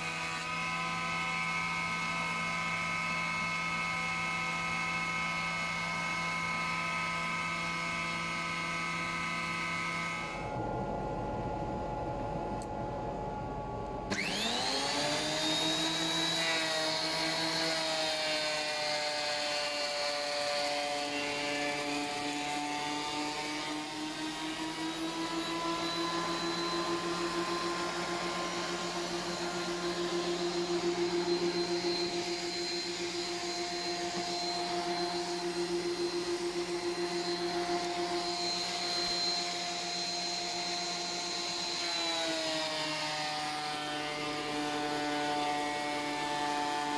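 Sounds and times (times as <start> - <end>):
thickness planer motor whining: 0.0 - 46.9
boards feeding through cutter: 14.1 - 46.9.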